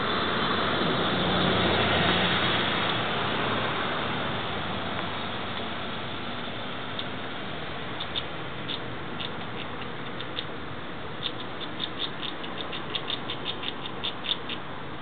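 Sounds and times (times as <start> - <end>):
squirrel gnawing nut shell: 8.0 - 10.5, 11.2 - 14.6.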